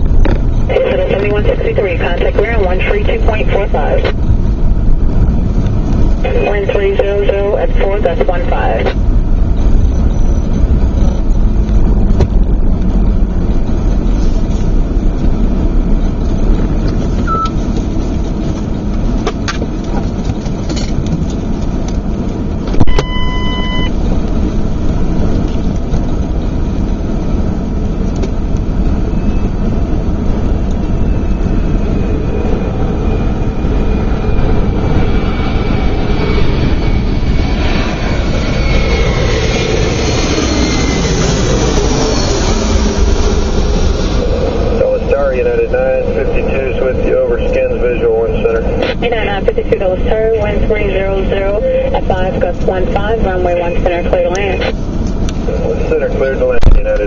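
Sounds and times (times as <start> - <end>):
vehicle engine rumble: 0.0 - 57.0
short electronic beep: 17.2 - 17.6, 22.8 - 24.0.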